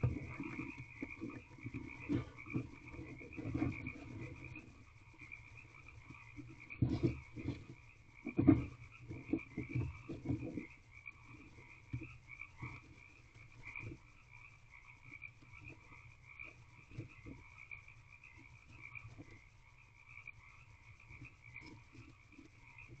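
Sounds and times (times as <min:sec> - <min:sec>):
bumps and scratches in wood shavings: 0:00.0 - 0:14.4
frogs calling in pulsing trill: 0:00.0 - 0:23.0.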